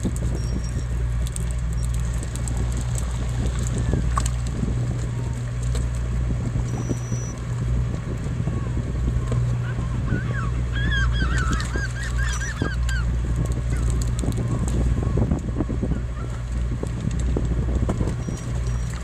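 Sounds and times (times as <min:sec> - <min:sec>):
boat engine droning: 0:00.0 - 0:19.0
seabirds honking cries: 0:00.1 - 0:16.8.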